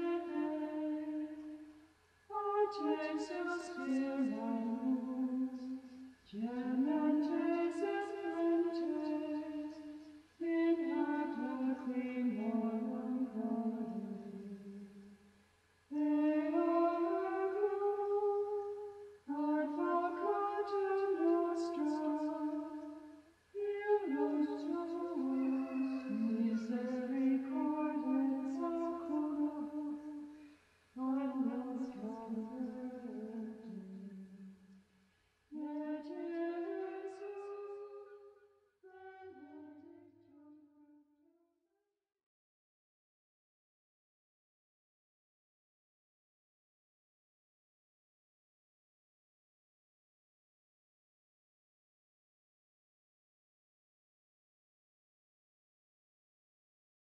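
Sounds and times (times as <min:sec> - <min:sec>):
person singing unaccompanied: 0:00.0 - 0:15.2, 0:15.9 - 0:34.6, 0:35.5 - 0:38.2, 0:38.8 - 0:40.9.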